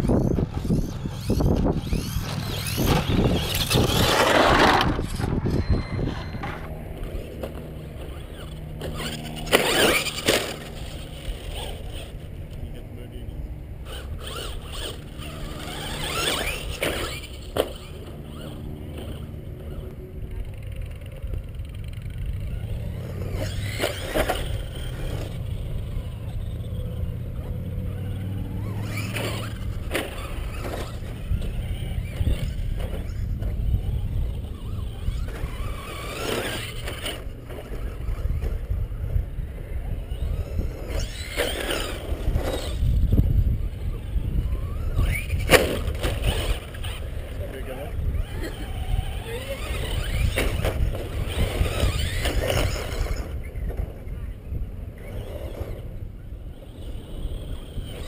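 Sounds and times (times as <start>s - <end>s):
low rumble: 0.0s - 8.0s
radio-controlled truck motor whine: 0.0s - 58.0s.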